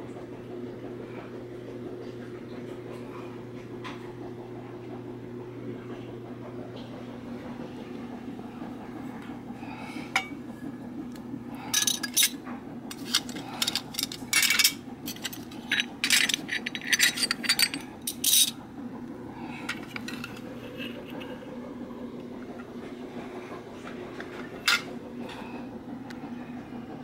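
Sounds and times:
tin toy cups clinking: 11.7s - 18.6s.

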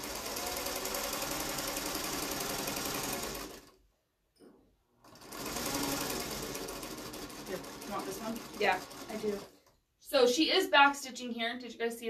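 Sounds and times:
electric sewing machine stitching: 0.0s - 3.8s, 5.0s - 9.7s.

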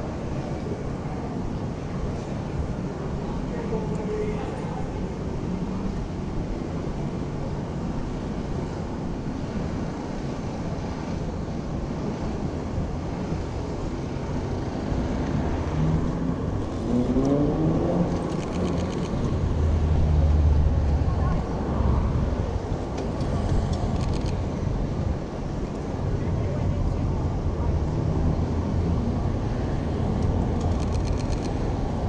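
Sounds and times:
passing cars hum: 0.0s - 32.0s
engine speeding up: 15.0s - 21.0s.

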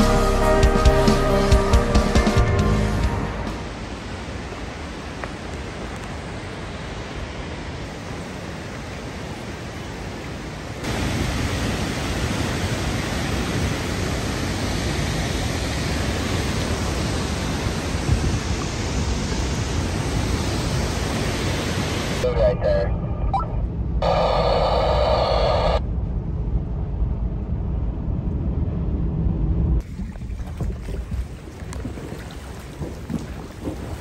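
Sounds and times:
waterfall rushing: 3.3s - 22.3s.

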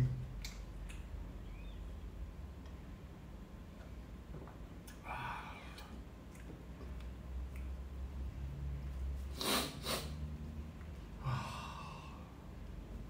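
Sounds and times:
man sniffing: 9.3s - 10.2s
breathy exhale: 11.2s - 12.4s.

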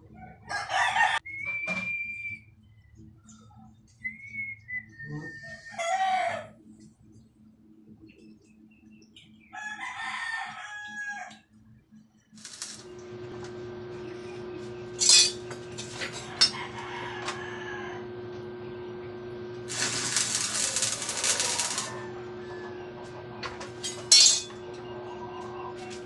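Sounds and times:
steady low hum: 11.8s - 26.0s
welding arc crackling and sizzling: 12.3s - 16.6s, 19.2s - 22.4s, 23.0s - 24.6s.

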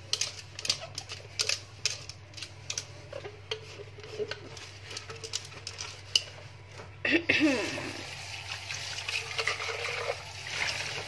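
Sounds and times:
dishes clinking in a metal sink: 9.0s - 11.0s.

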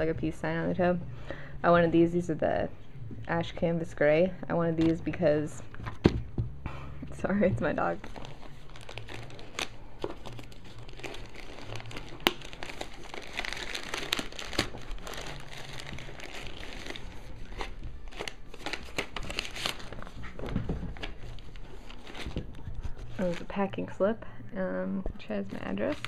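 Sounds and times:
plastic mailer crinkling: 7.7s - 23.6s.

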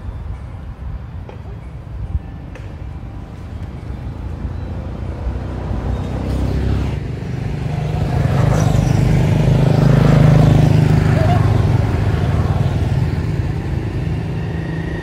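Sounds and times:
motorbike engine approaching: 3.4s - 15.0s.

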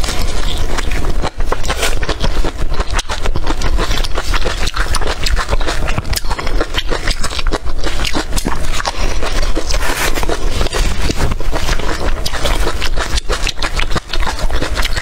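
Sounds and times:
chewing crunchy peppers: 0.0s - 15.0s
steady low hum: 0.0s - 15.0s.

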